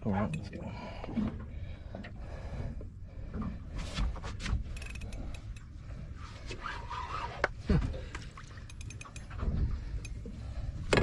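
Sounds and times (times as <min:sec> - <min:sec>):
low steady rumble: 0:00.0 - 0:11.0
fishing reel clicking: 0:04.8 - 0:05.7.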